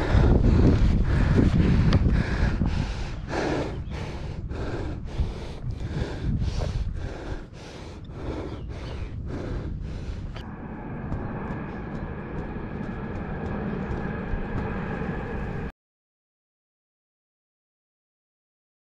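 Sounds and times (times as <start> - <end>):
person breathing hard: 0.0 - 15.6
low rumble: 0.0 - 15.7
faint high hum: 8.0 - 15.7.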